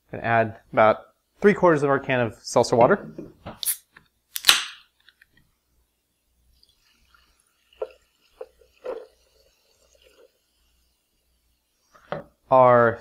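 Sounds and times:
can opening with hiss: 0:03.5 - 0:05.3
liquid pouring onto ice: 0:06.6 - 0:10.5.

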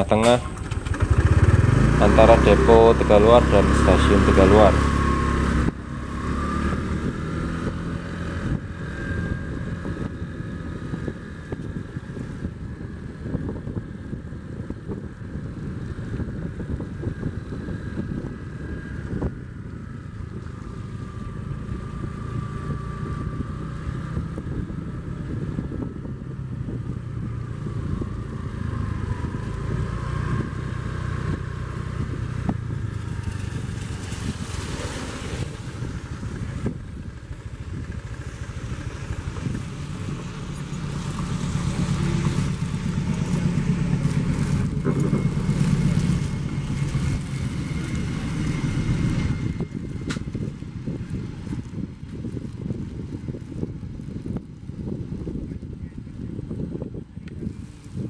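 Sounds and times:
train wheels rumbling on rails: 0:37.1 - 0:50.6.

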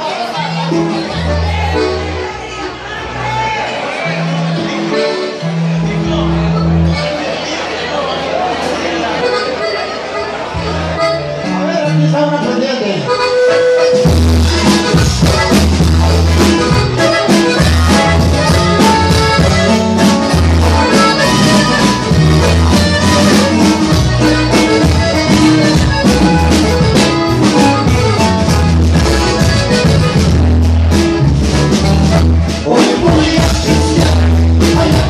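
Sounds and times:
accordion melody: 0:00.0 - 0:35.0
steady percussion: 0:13.9 - 0:35.0
pulsing bass line: 0:14.0 - 0:35.0.

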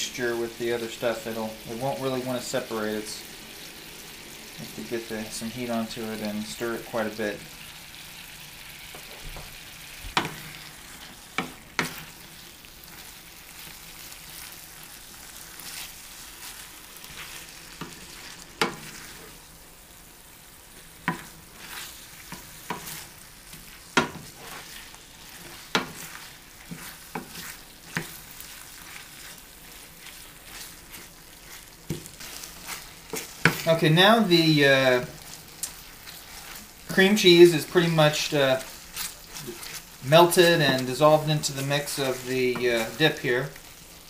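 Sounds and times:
low sizzle in skillet: 0:00.0 - 0:44.0
wooden spoon knocking on pan: 0:10.1 - 0:10.4, 0:18.6 - 0:18.9, 0:23.9 - 0:24.4, 0:25.7 - 0:26.0.

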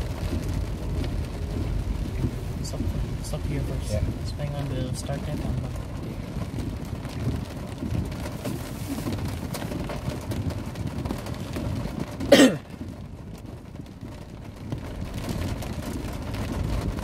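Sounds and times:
low rumble: 0:00.0 - 0:12.2
heavy rain on a car: 0:00.0 - 0:17.0
person coughing: 0:12.3 - 0:12.8.

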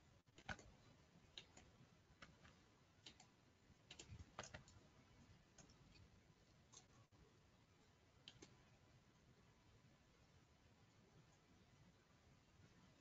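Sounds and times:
computer mouse clicks: 0:00.3 - 0:04.9, 0:05.5 - 0:07.0, 0:08.2 - 0:08.7.

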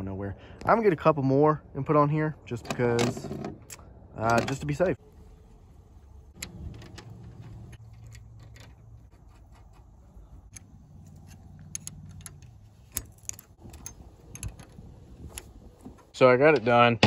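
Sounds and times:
metal clicks of clips and wrench: 0:06.4 - 0:15.5.

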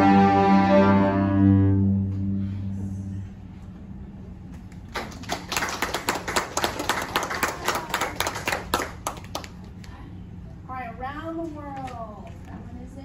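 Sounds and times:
small group applauding: 0:04.6 - 0:10.0.

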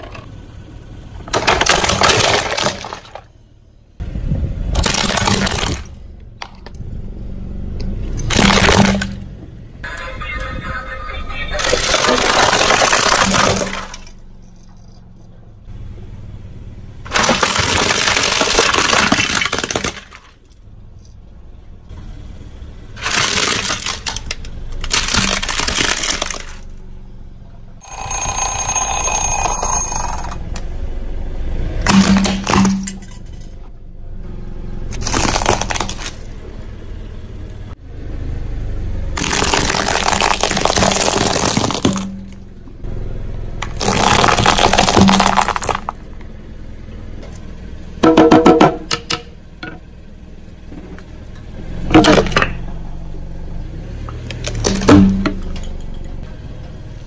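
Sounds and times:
objects crunching under car tire: 0:23.0 - 0:26.7, 0:34.9 - 0:36.3, 0:39.2 - 0:42.5, 0:43.6 - 0:46.0.

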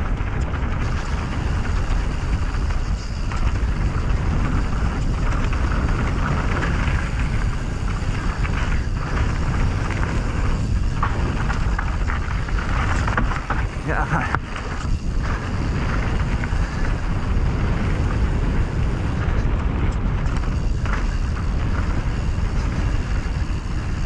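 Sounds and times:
bike tyres rolling over dirt: 0:00.0 - 0:24.0
wind on microphone: 0:00.0 - 0:24.0.

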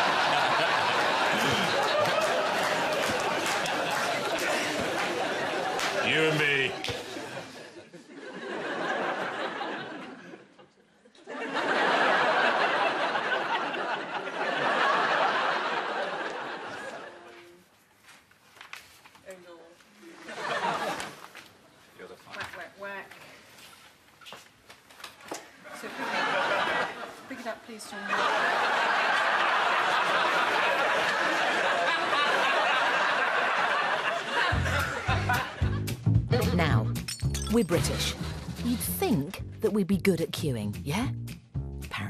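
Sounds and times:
audience laughing: 0:00.0 - 0:17.5, 0:20.1 - 0:21.5, 0:25.7 - 0:36.0.

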